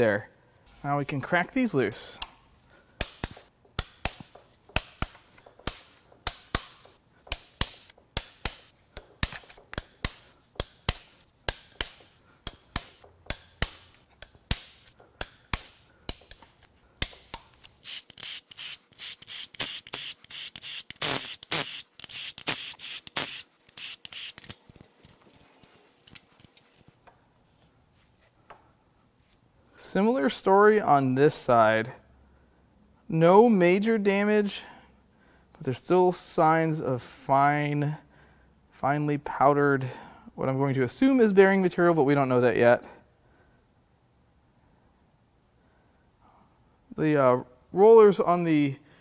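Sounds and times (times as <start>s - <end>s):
hand ratchet clicking: 3.0s - 25.2s.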